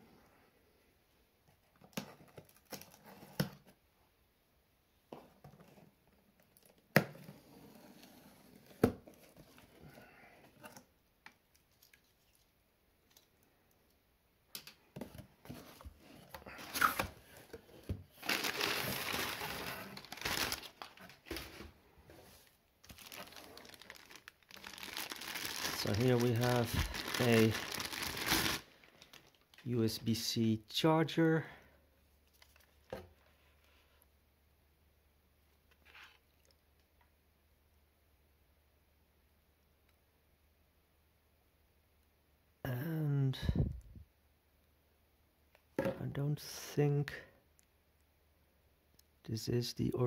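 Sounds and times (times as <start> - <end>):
packing paper rustling: 18.1 - 21.8, 22.4 - 29.7.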